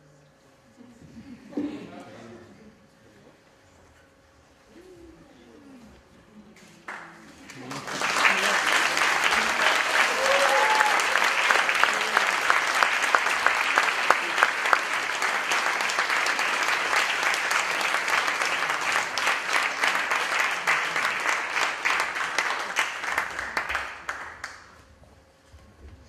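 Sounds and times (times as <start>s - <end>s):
crowd clapping: 6.8s - 24.9s.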